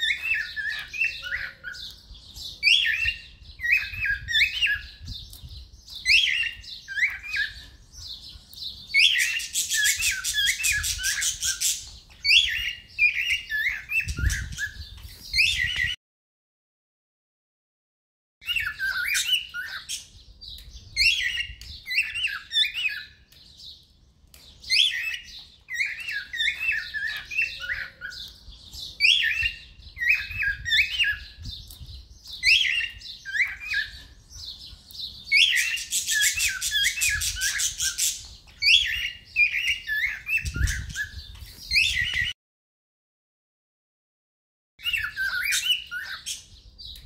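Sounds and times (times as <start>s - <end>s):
harsh buzzy bird chatter: 0.0s - 15.9s, 29.7s - 42.2s
cockatiels chirping and whistling: 0.0s - 16.0s, 18.4s - 20.2s, 20.9s - 23.2s, 24.6s - 42.4s, 44.8s - 47.0s.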